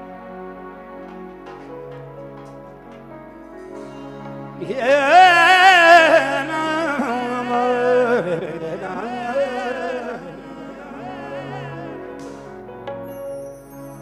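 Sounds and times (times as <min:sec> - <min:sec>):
man singing wordless ornaments: 0:04.6 - 0:12.5.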